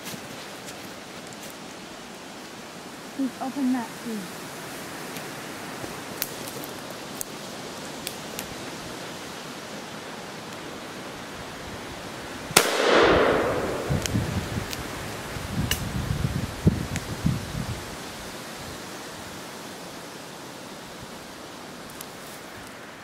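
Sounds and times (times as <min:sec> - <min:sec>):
shotgun shot echoing: 0:12.6 - 0:14.3.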